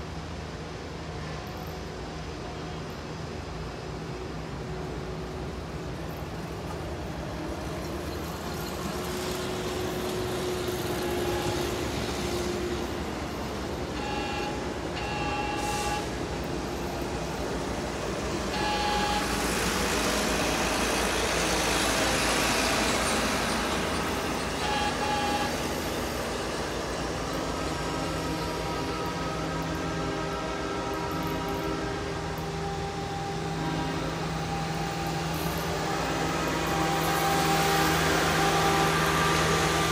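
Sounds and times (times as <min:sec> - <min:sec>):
train rumble and rail noise: 0:00.0 - 0:39.9
diesel engine running: 0:05.0 - 0:39.9
train horn blasts: 0:09.2 - 0:17.0, 0:18.1 - 0:39.9.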